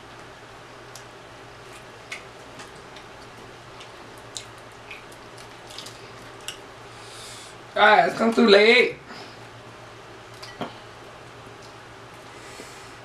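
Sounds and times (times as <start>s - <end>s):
steady low hum: 0.0s - 13.0s
wet clicks of eating chicken: 0.9s - 1.1s, 1.8s - 6.7s, 10.3s - 10.6s, 11.2s - 12.3s.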